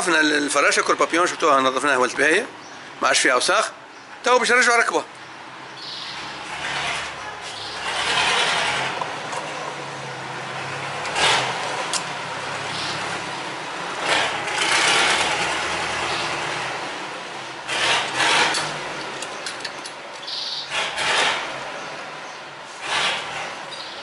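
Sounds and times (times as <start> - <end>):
metal parts scraping: 17.7 - 21.6.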